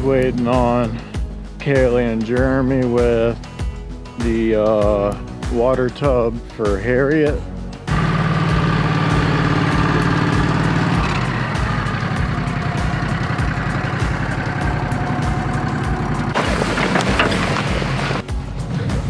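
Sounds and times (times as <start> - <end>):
rough noisy engine sound: 7.8 - 18.3
vehicle engine running: 7.8 - 18.3.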